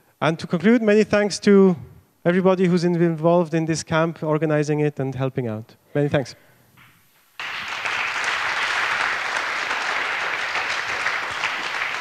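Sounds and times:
audience applauding: 7.4 - 12.0.

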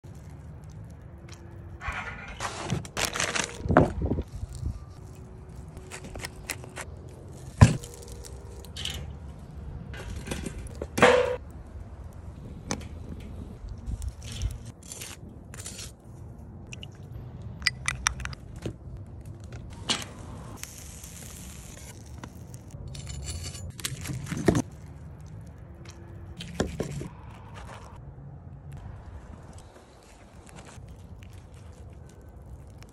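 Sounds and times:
metal tools scraping on grill grate: 1.8 - 2.8.

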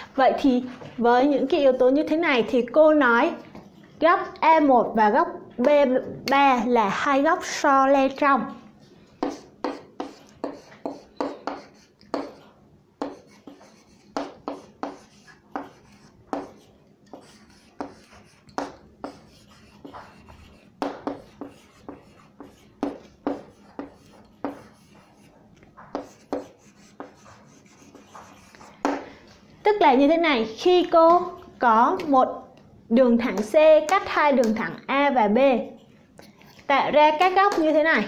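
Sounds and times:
pen writing strokes: 9.2 - 28.8.

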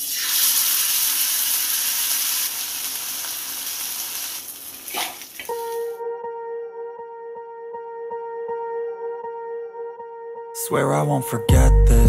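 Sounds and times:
fish sizzling in hot oil: 0.0 - 5.6
music: 5.5 - 12.0.

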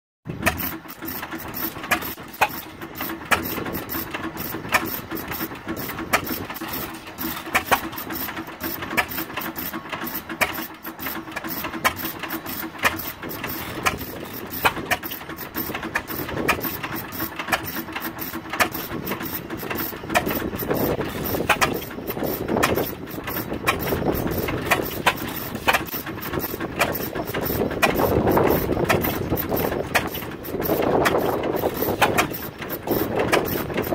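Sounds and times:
stationary gas engines popping: 0.3 - 33.9.

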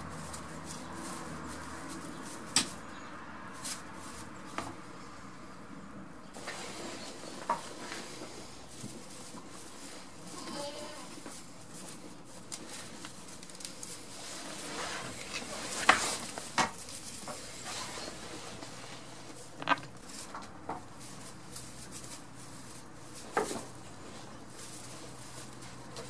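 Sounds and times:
hooves rustling on straw: 0.0 - 26.0
hooves knocking on wooden floor: 19.5 - 21.0.

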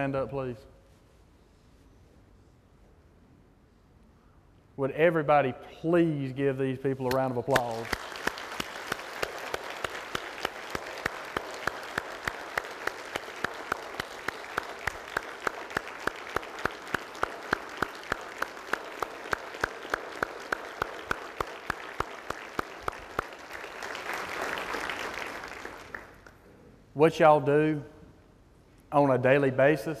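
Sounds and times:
close person clapping: 7.0 - 26.4
audience applauding: 7.2 - 26.4.

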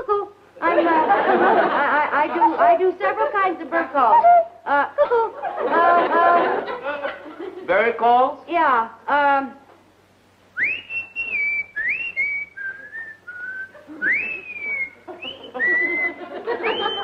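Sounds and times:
woman whistling bird call: 10.6 - 17.0.

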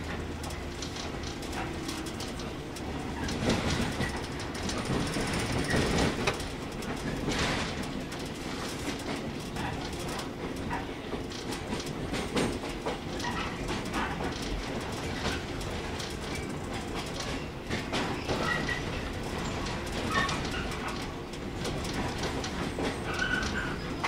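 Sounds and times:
train rumble: 0.0 - 24.0
train wheels clicking over rail joints: 0.0 - 24.0.

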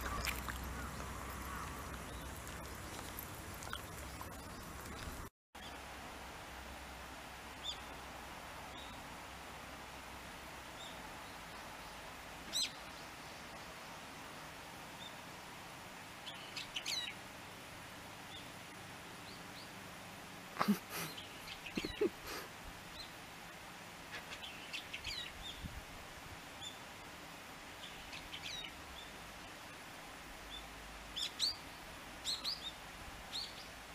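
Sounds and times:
small birds chirping: 0.0 - 5.8, 20.6 - 23.2
faint steady hiss: 0.0 - 33.9.

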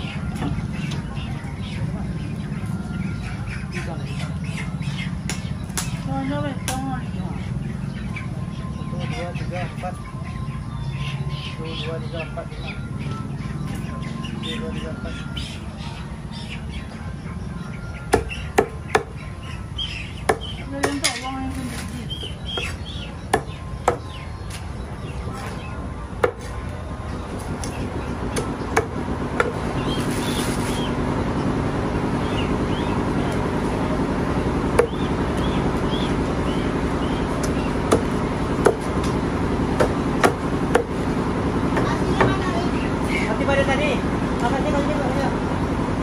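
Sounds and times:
steady background hum: 0.0 - 46.0
cleaver chopping on wooden block: 18.1 - 19.1, 23.3 - 24.1, 26.2 - 26.5, 28.4 - 29.6, 39.8 - 40.9.

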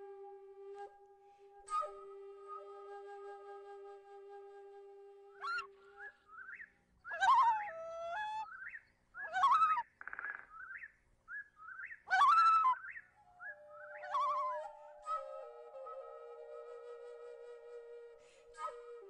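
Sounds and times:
flute note: 0.0 - 6.1, 13.4 - 19.0
swooping whistled bird calls: 5.4 - 16.9.

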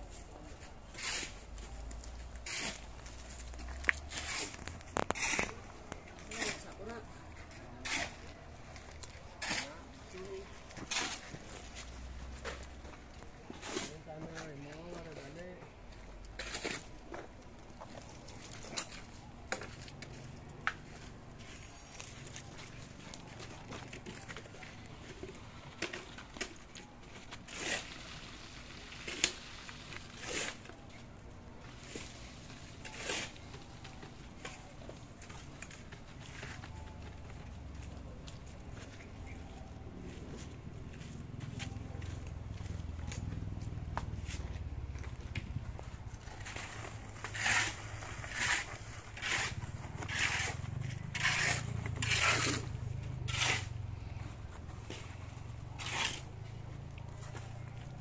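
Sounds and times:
wet concrete scraping: 0.7 - 15.4, 27.2 - 31.0, 31.7 - 39.4, 45.8 - 54.0, 54.8 - 58.0.

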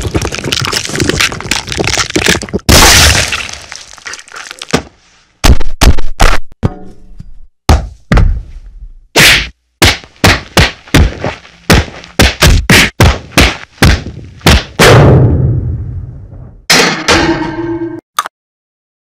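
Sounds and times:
punch and hit impacts: 4.7 - 6.5, 7.7 - 8.4, 9.2 - 15.5.

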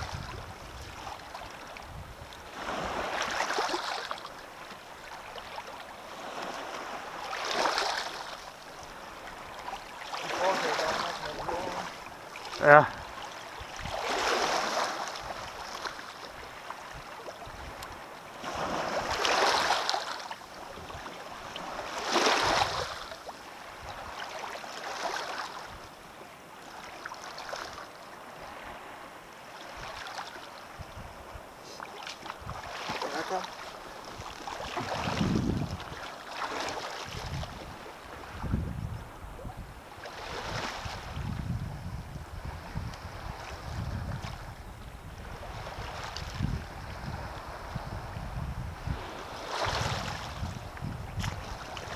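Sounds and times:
seawater lapping on stones: 0.0 - 23.3, 31.6 - 37.8.

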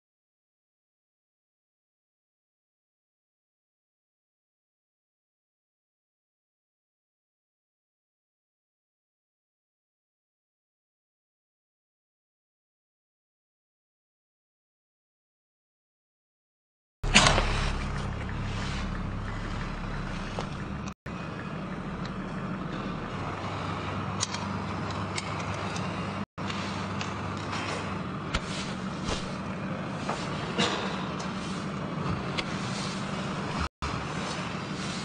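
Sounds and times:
steady low hum: 17.0 - 35.0.

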